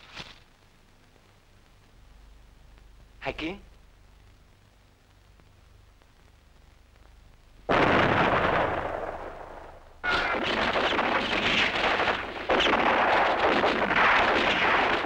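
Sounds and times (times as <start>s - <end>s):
crackling gunfire and blasts: 6.1s - 15.0s
loud explosion: 7.7s - 15.0s.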